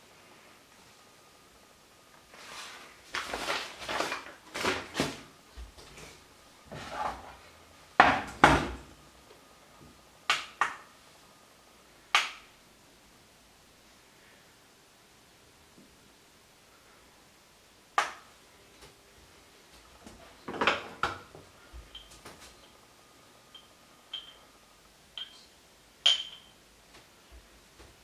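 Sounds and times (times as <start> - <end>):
paper bag crinkling: 2.3 - 5.3
kitchen things knocking and clinking: 26.0 - 26.6.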